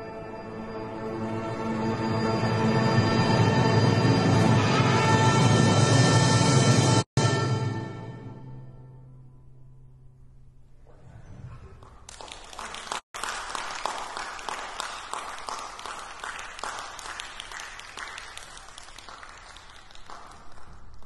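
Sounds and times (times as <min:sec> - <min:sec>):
audience applause: 0:11.8 - 0:21.0.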